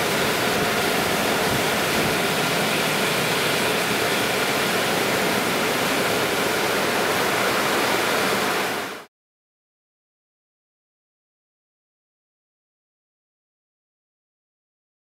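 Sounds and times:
dryer blowers rushing air: 0.0 - 9.1.

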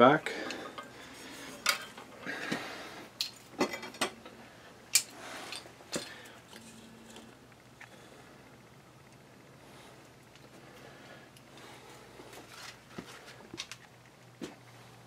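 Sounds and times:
metal parts clicking and clanking: 1.6 - 2.2, 4.9 - 7.2.

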